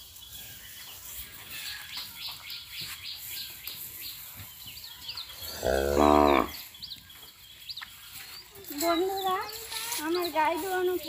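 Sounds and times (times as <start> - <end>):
small birds chirping: 0.0 - 11.0
cattle mooing: 5.6 - 6.6.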